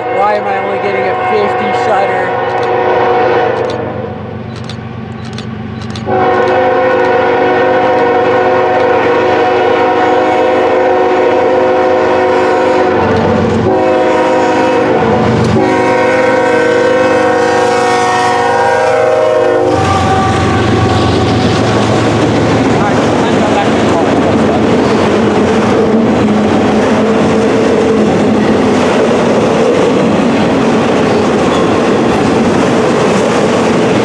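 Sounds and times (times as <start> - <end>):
locomotive air horn: 0.0 - 4.2, 6.1 - 21.9
locomotive wheels rumbling on rails: 0.1 - 34.0.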